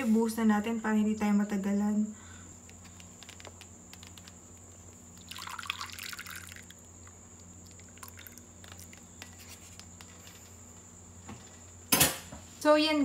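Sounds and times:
liquid pouring into plastic tub: 0:05.1 - 0:06.8, 0:07.6 - 0:09.1.

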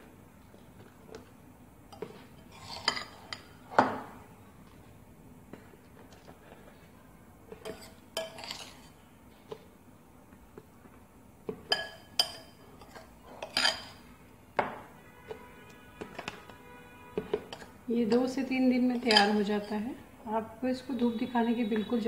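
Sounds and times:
wet vegetables stirred: 0:00.0 - 0:03.8, 0:04.5 - 0:22.0
spoon clinking against glass bowl: 0:11.6 - 0:14.0, 0:19.0 - 0:19.7.

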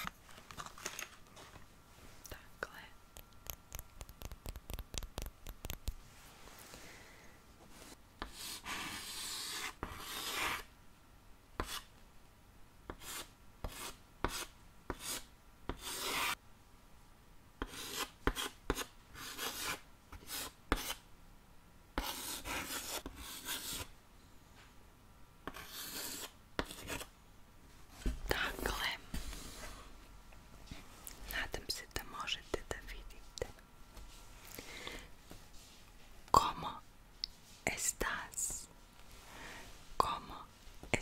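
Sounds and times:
chalk writing on chalkboard: 0:08.2 - 0:10.7, 0:11.6 - 0:11.9, 0:12.9 - 0:16.4, 0:17.6 - 0:21.0, 0:22.0 - 0:23.9, 0:25.5 - 0:27.1.

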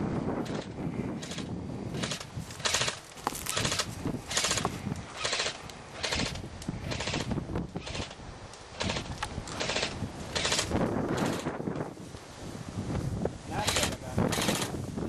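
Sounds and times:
airsoft guns firing bursts: 0:02.0 - 0:04.6.

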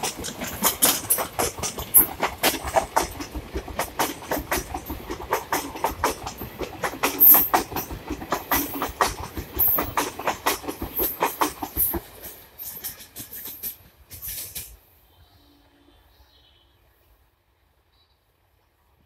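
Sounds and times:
train wheels clattering over rail joints: 0:00.0 - 0:14.8.

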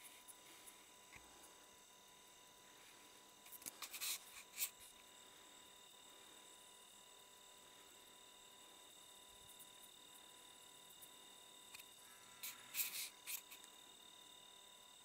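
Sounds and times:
faint high-pitched electronic whine: 0:00.0 - 0:15.0.

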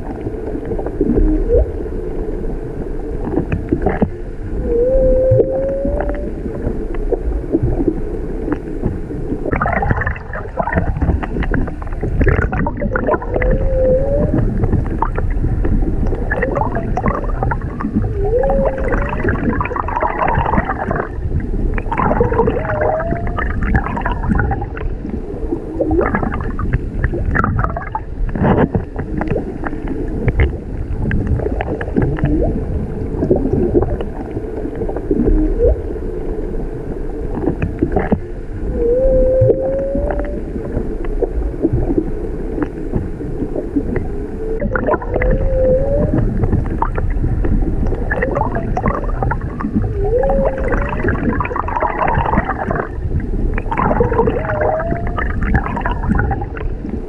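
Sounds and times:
underwater noise: 0:00.0 - 0:57.0
whale song moans and cries: 0:01.0 - 0:02.1, 0:03.9 - 0:07.7, 0:12.4 - 0:26.6, 0:31.5 - 0:43.2, 0:43.8 - 0:53.1, 0:53.7 - 0:57.0
underwater clicks: 0:03.2 - 0:04.2, 0:04.8 - 0:25.2, 0:25.8 - 0:35.8, 0:37.3 - 0:57.0.

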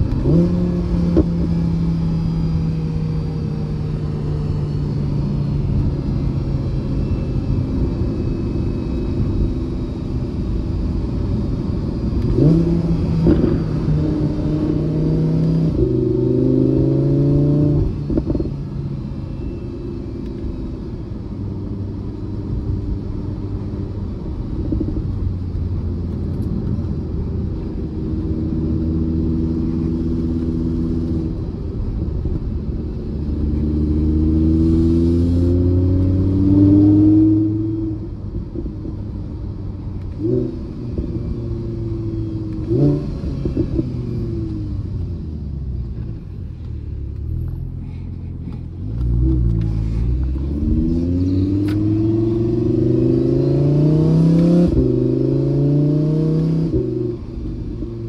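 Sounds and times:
car engine from inside cabin: 0:00.0 - 0:58.0
tyre and road noise: 0:00.0 - 0:58.0.

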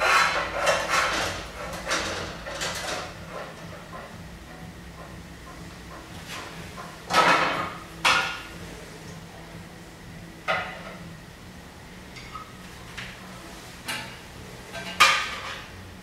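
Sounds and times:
metal bowls and plates clattering: 0:14.0 - 0:15.7.

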